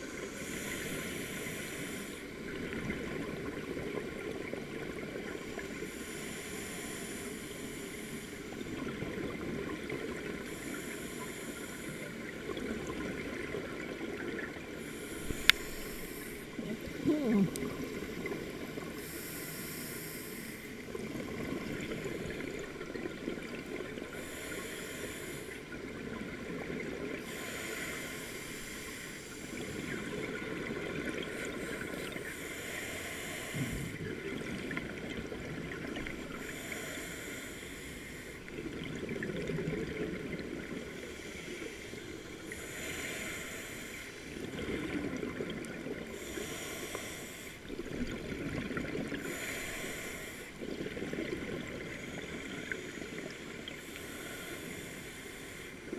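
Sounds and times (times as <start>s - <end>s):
regulator hissing on inhale: 0.1s - 2.3s, 5.6s - 8.6s, 10.4s - 12.2s, 14.8s - 16.6s, 18.0s - 21.0s, 24.1s - 25.8s, 27.2s - 30.2s, 31.4s - 34.0s, 36.3s - 38.4s, 40.9s - 44.5s, 46.1s - 47.8s, 49.2s - 50.6s, 52.0s - 55.9s
bubbles rumbling on exhale: 16.9s - 18.0s.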